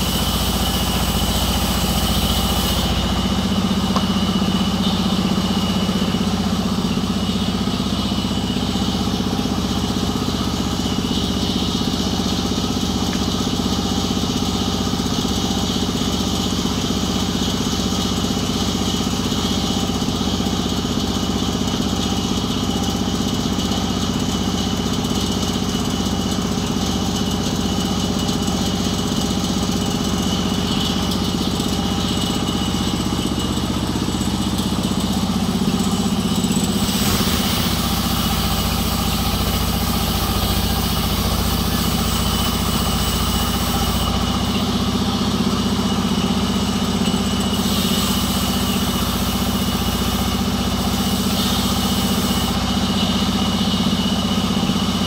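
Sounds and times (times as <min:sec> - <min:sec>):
saw blade hissing in wood: 0:00.0 - 0:05.6, 0:33.9 - 0:44.4, 0:47.6 - 0:52.8
band saw drone: 0:00.0 - 0:15.0, 0:30.1 - 0:46.3.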